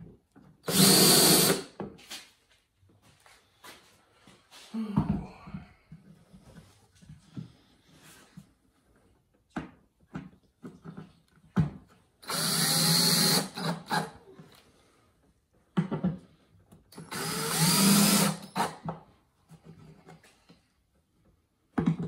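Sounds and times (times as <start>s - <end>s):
cordless drill whining: 0.6s - 1.7s, 12.2s - 14.2s, 17.0s - 18.8s.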